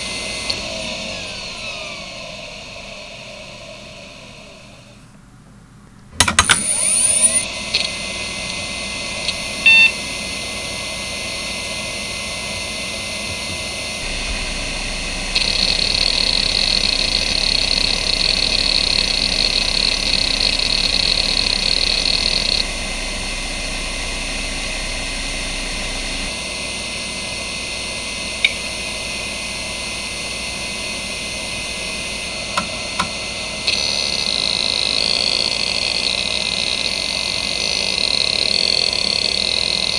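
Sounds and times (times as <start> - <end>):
hard drive spindle whine: 0.0 - 5.5, 6.1 - 39.9
hard drive seeking rasp: 13.1 - 39.9.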